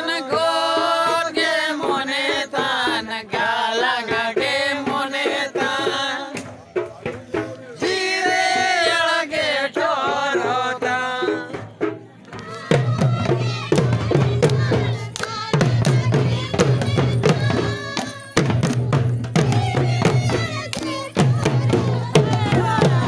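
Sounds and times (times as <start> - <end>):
barrel drum beats: 0.0 - 23.0
men singing unaccompanied: 0.0 - 23.0.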